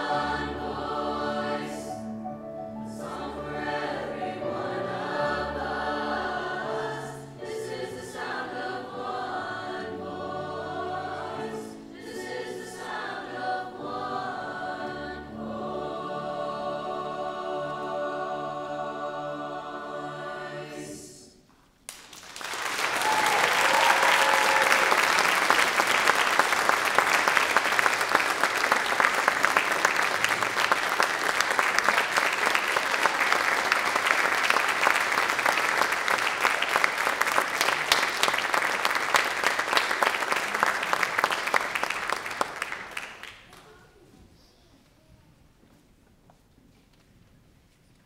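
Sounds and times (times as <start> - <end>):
choir holding a chord: 0.0 - 21.4
audience applause: 21.9 - 43.6.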